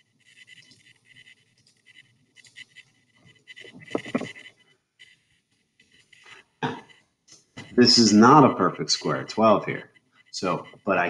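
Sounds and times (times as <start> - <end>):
computer keyboard typing: 0.0 - 5.2
throat noise: 6.6 - 6.9.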